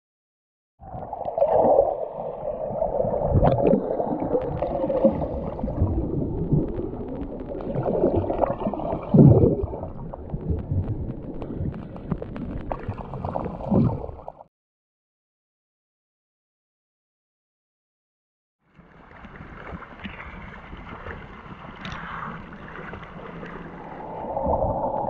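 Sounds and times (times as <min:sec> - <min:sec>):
underwater churning and gurgling: 0:00.8 - 0:14.5, 0:18.9 - 0:25.0
low underwater thumps: 0:03.2 - 0:14.5.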